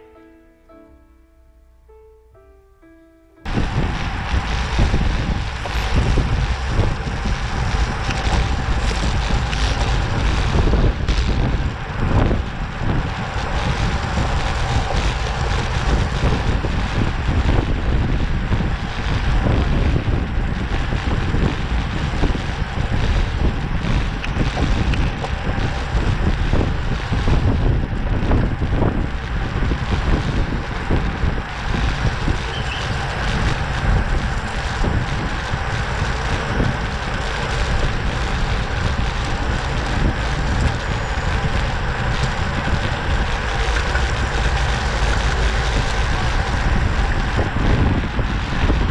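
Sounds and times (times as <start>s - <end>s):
wind rushing over microphone: 3.4s - 48.9s.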